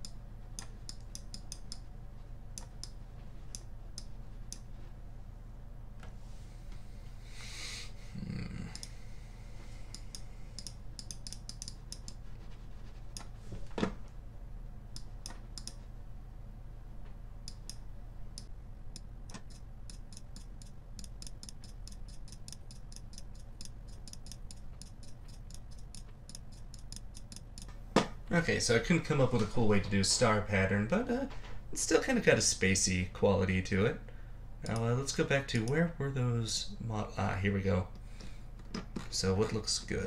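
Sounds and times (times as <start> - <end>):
computer mouse clicking: 0.0 - 1.9, 2.6 - 4.7, 9.9 - 12.2, 14.9 - 15.8, 17.4 - 17.8, 18.4 - 27.8, 34.6 - 34.9
steady low hum: 0.0 - 40.0.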